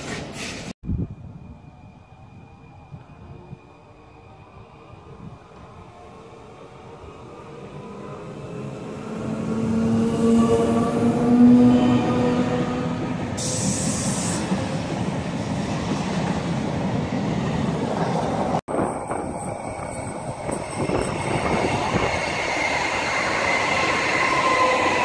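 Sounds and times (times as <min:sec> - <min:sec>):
train whine: 0:00.9 - 0:25.0
train wheels rumbling on rails: 0:08.1 - 0:25.0.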